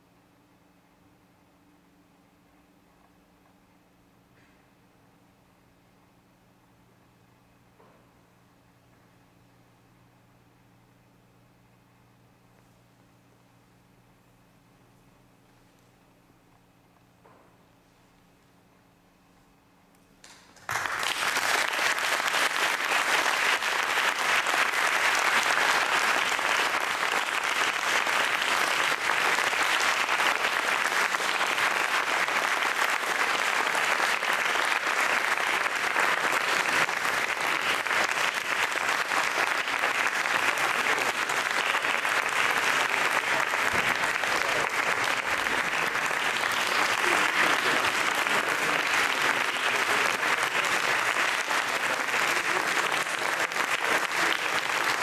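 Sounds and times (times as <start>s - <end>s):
audience applauding: 20.2s - 55.0s.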